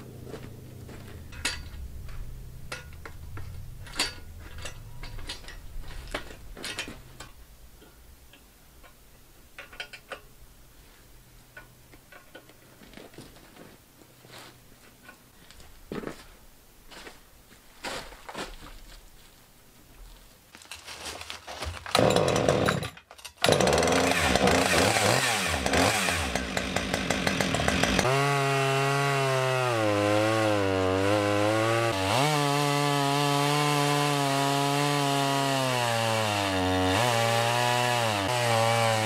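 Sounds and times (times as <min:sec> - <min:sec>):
metal clicks and clanks: 0:01.3 - 0:10.4, 0:11.5 - 0:12.6.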